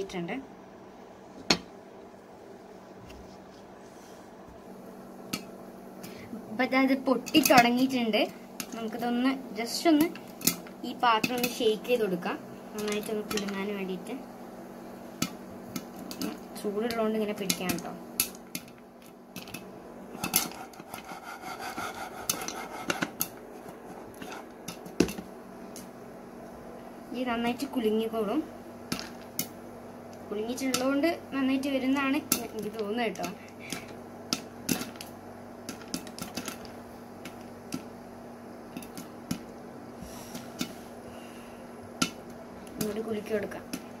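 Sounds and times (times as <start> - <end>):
steady low hum: 0.0 - 44.0
popcorn popping: 5.2 - 14.2, 14.8 - 26.0, 28.8 - 41.0, 41.8 - 44.0
popcorn rattling in shaken pan: 32.1 - 38.0.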